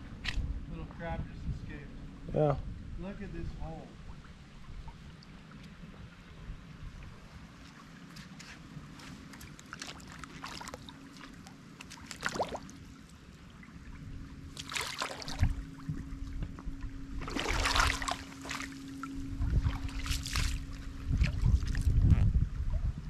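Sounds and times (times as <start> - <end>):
faint steady hum: 0.0 - 23.0
paddle strokes splashing: 7.1 - 16.6, 17.2 - 22.0.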